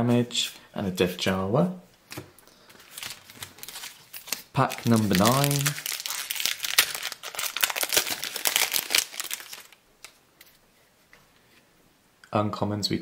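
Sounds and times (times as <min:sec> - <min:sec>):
foil wrapper crinkling and tearing: 0:02.8 - 0:10.2.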